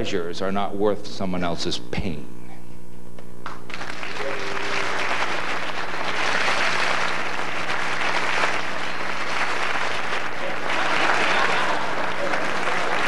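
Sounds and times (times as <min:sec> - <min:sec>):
audience applauding: 0:03.4 - 0:13.0.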